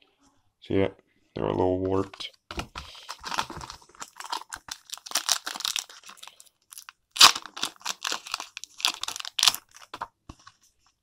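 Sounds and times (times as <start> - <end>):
trading cards rustling and snapping: 2.5 - 10.5.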